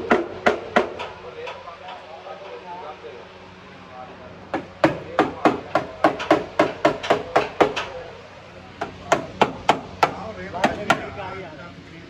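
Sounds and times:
hammer striking car body panel: 0.0 - 1.1, 4.5 - 7.9, 8.8 - 11.1.

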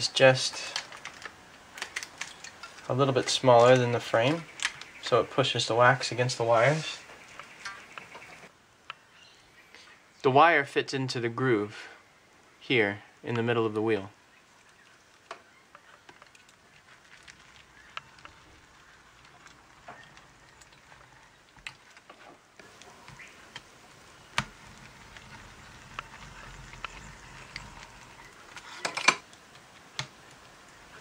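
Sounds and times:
faint clicks and crackles: 0.5 - 5.5, 7.0 - 9.0, 14.2 - 31.0.

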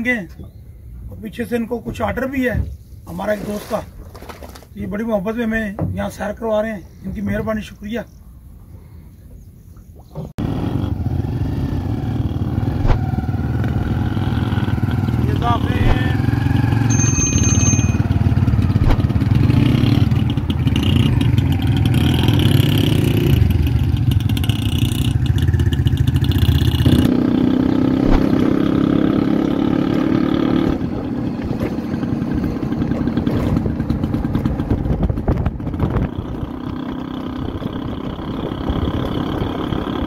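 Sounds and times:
motorcycle engines running: 10.4 - 40.0.

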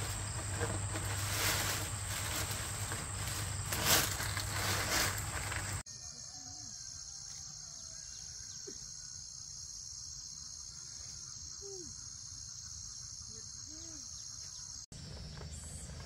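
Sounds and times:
insects droning: 0.0 - 16.0
faint small animal calls: 11.0 - 12.1.

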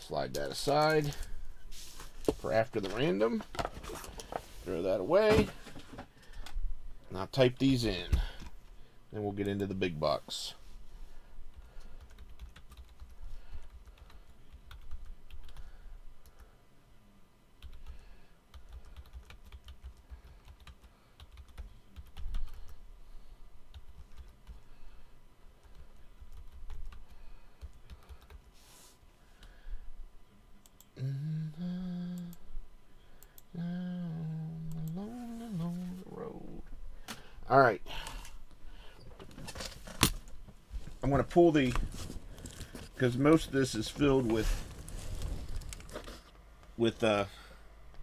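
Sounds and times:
man humming: 30.9 - 32.6, 33.4 - 36.6.

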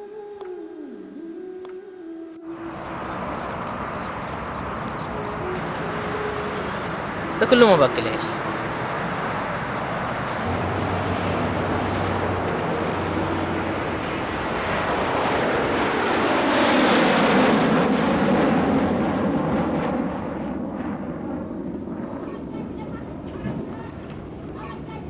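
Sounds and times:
vehicle passing: 2.5 - 20.6
distant traffic rumble: 2.5 - 25.0.

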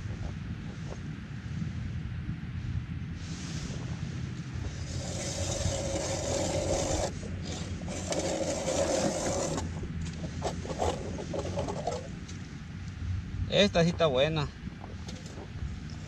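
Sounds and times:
fishing reel whirring scrape: 4.7 - 9.8.

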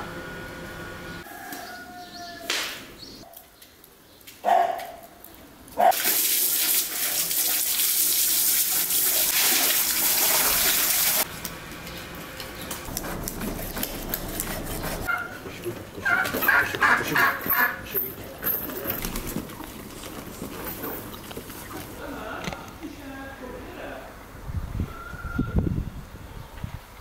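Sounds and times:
water splashing into a basin: 5.9 - 11.3.

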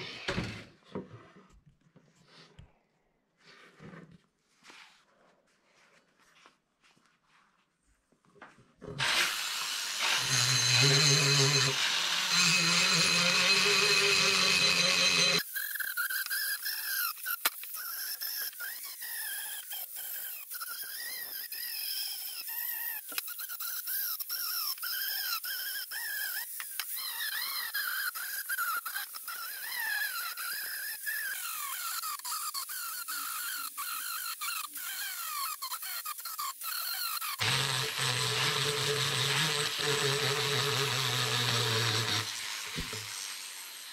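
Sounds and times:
rotary tool squealing on metal: 9.1 - 43.3.

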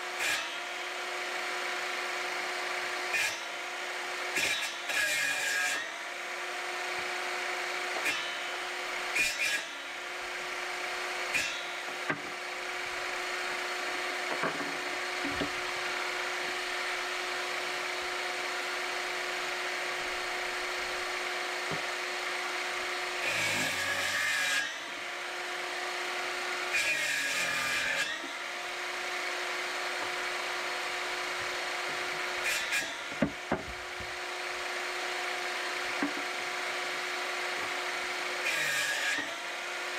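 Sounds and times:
electric saw motor running: 0.0 - 39.9
saw cutting through wood: 0.0 - 39.9
wood knocks: 14.3 - 15.6, 33.1 - 34.1, 36.0 - 36.3.

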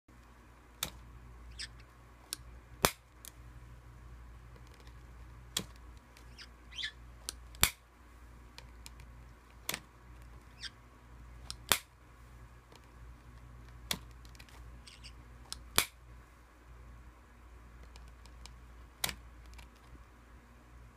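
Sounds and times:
short high squeaks: 6.3 - 7.0, 10.5 - 10.8, 14.8 - 15.2.

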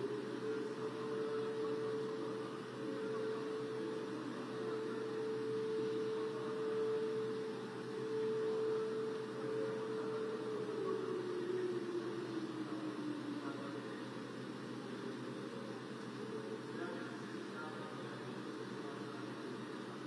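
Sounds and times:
air-raid siren: 0.0 - 14.0.

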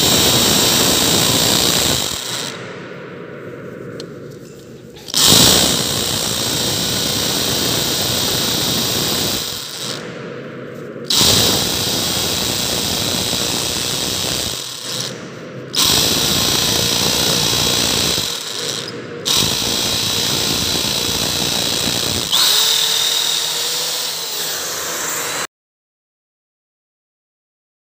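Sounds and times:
hammer drill boring into concrete: 0.0 - 2.6, 5.1 - 10.1, 11.1 - 25.5.

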